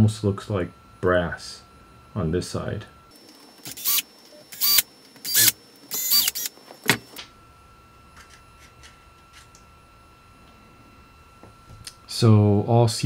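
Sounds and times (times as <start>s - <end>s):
electric screwdriver whirring: 3.6s - 7.2s.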